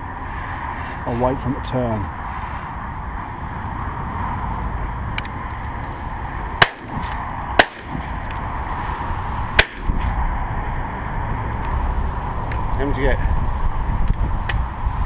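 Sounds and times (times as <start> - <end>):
shotgun shots: 6.6 - 8.1, 9.6 - 9.9.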